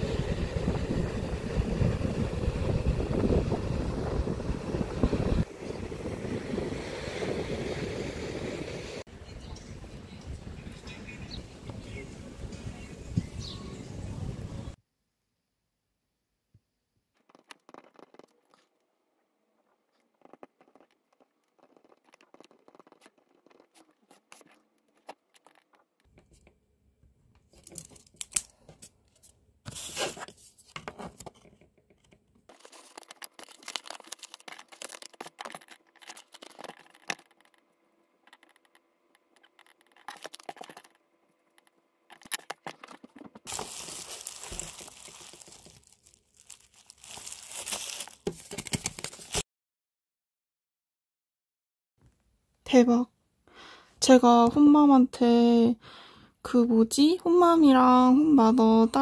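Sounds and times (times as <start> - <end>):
pen scratching on paper: 20.1 - 25.5
paper rustling and crinkling: 27.5 - 37.6, 39.4 - 41.0, 42.1 - 49.4.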